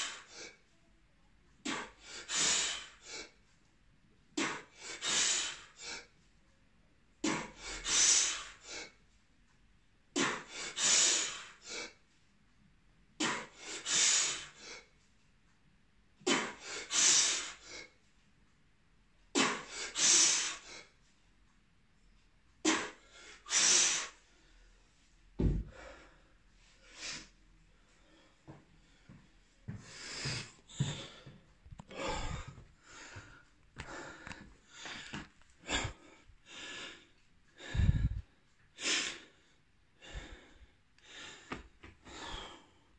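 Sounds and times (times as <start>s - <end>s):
dull thump: 25.4s - 25.7s
man breathing hard: 25.5s - 42.9s.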